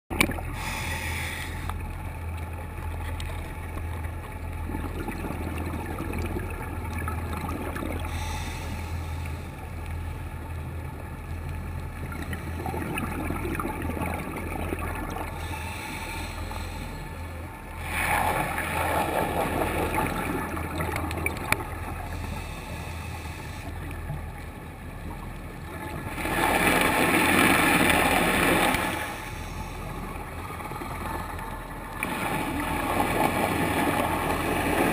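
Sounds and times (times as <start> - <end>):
underwater low hum: 0.1 - 34.9
diver's exhaled bubbles: 4.7 - 8.2.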